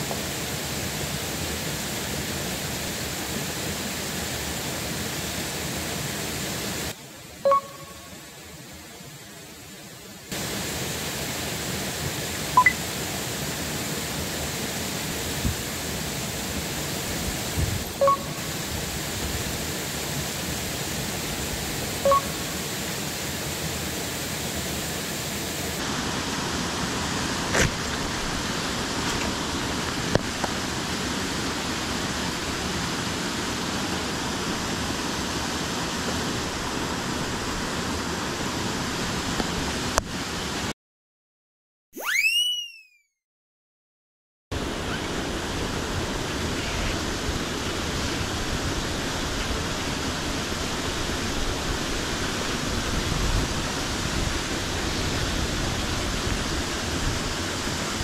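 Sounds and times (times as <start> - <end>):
water rushing over weir: 0.0 - 40.7, 44.6 - 58.0
high peeps: 7.4 - 8.1, 12.6 - 12.8, 17.9 - 18.5, 22.0 - 22.4, 42.0 - 43.1.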